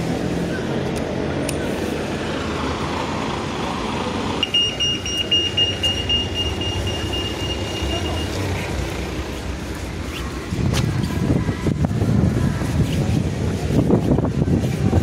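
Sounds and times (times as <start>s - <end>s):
road traffic rumble: 0.0s - 15.0s
electronic beeper pulsed tone: 4.4s - 8.4s.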